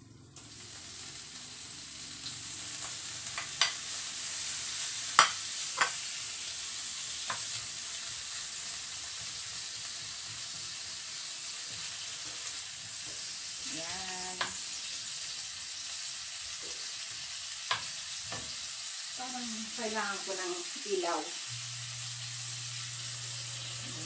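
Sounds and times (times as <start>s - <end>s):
bacon sizzling in a frying pan: 0.4s - 24.0s
wooden spoon knocking on pan: 5.2s - 6.0s, 17.7s - 18.6s.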